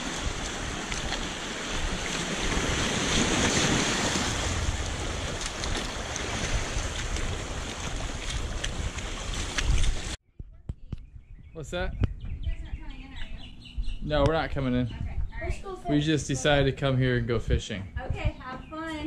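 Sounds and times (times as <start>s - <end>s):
sea waves breaking on rocks: 0.0s - 10.2s
wind buffeting microphone: 0.0s - 19.0s.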